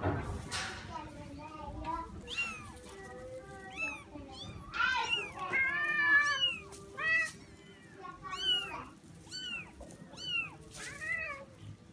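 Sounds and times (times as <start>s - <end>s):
kittens mewing: 2.1s - 11.6s.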